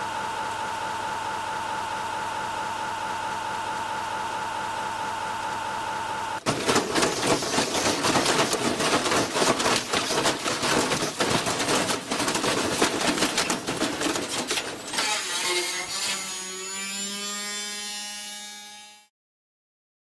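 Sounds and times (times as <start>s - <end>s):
washing machine drum banging: 6.4s - 15.0s.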